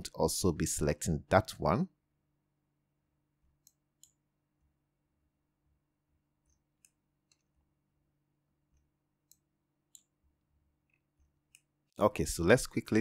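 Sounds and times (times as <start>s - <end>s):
computer mouse clicks: 3.6s - 4.2s, 6.4s - 7.5s, 8.7s - 10.1s.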